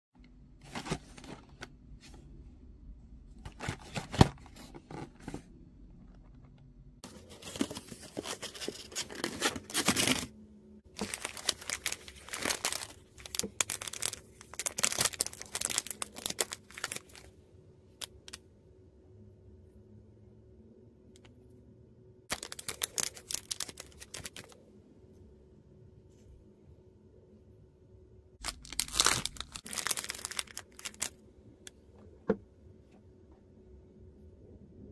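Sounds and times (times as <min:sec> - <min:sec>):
plastic wrapper tearing and crinkling: 0:10.9 - 0:17.3, 0:22.3 - 0:24.6, 0:28.4 - 0:31.2.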